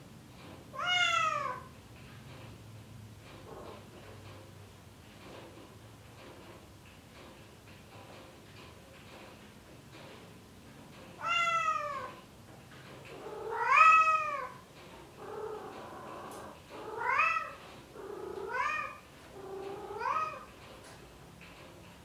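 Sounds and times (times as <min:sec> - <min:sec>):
cat meowing: 0:00.8 - 0:01.7, 0:11.2 - 0:12.2, 0:13.2 - 0:14.6, 0:15.3 - 0:20.5.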